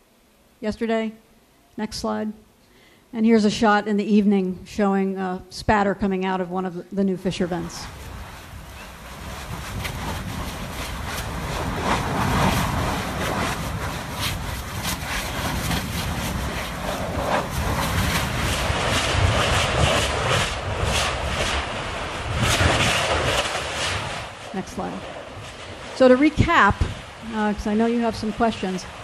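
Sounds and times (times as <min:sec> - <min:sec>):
lava roaring: 0:07.7 - 0:29.0
lava spattering pops: 0:08.0 - 0:27.2.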